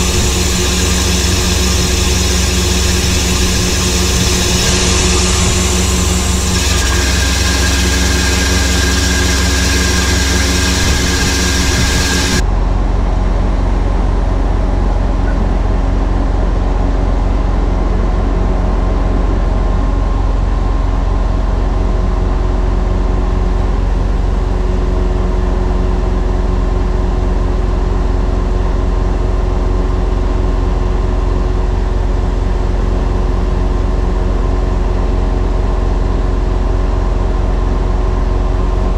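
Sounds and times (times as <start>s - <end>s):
diesel truck engine droning: 0.0s - 12.4s.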